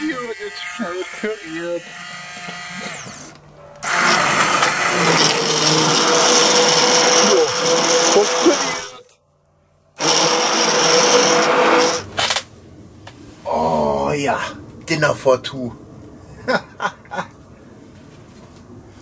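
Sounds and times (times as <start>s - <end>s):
hand blender motor whine: 0.4s - 9.0s, 10.0s - 12.2s.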